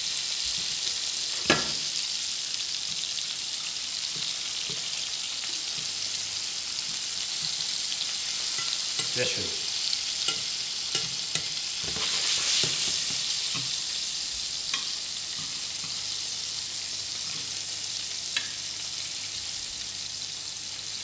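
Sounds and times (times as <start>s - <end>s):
food sizzling in a pan: 0.0s - 21.0s
tweezers clicking against pan: 8.5s - 9.1s.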